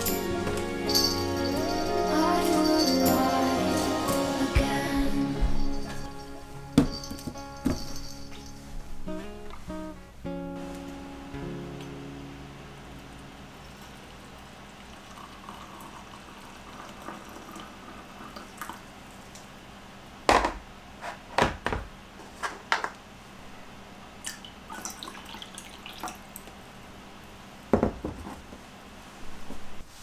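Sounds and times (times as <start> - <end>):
hot water pouring into a mug: 13.6 - 19.0, 24.3 - 26.5.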